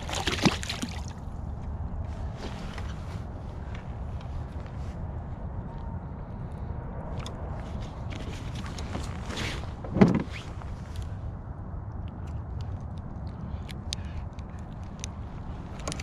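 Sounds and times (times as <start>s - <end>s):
steady low rumble: 0.0s - 16.0s
small clicks and rustles: 7.2s - 11.2s, 11.9s - 16.0s.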